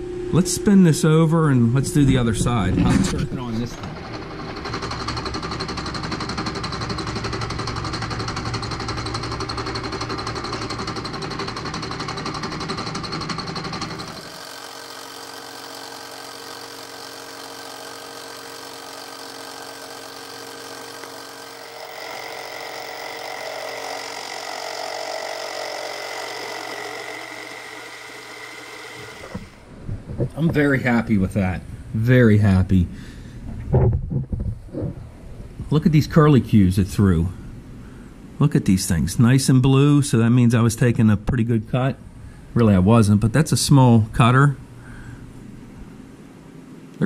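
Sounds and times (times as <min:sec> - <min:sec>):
milling spindle running hum: 0:00.0 - 0:29.7.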